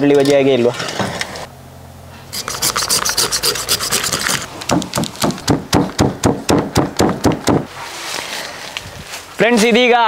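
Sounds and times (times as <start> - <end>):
knife scraping fruit skin: 2.4 - 4.5.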